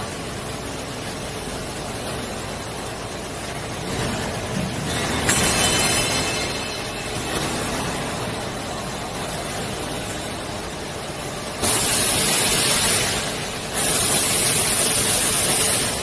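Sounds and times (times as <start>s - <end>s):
machinery running: 0.0s - 16.0s
loud hiss: 11.6s - 16.0s.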